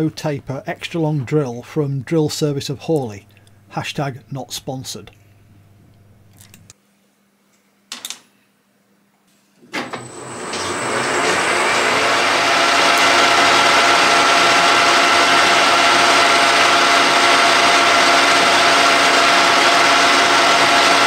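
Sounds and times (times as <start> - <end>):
lathe whining: 9.8 - 21.0.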